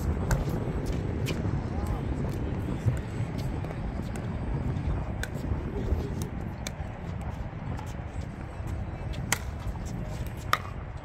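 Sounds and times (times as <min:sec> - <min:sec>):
steady low rumble: 0:00.0 - 0:11.0
paddles hitting ball: 0:09.2 - 0:10.8.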